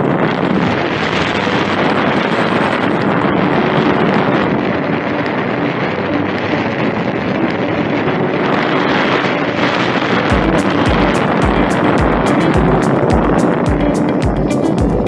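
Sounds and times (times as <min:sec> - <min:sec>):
wind on microphone: 0:00.0 - 0:15.0.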